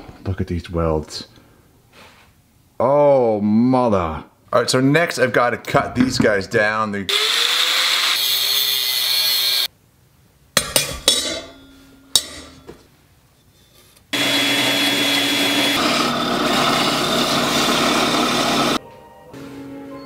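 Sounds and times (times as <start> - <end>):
angle grinder cutting steel: 7.1 - 9.7, 14.1 - 18.8
belt sander grinding steel: 13.6 - 18.8.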